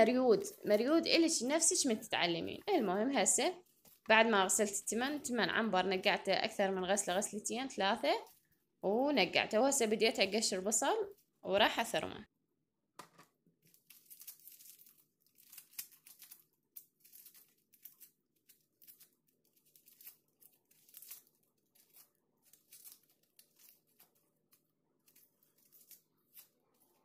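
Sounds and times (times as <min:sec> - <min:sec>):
onion skin crackling and tearing: 0:07.0 - 0:08.6, 0:13.6 - 0:27.0.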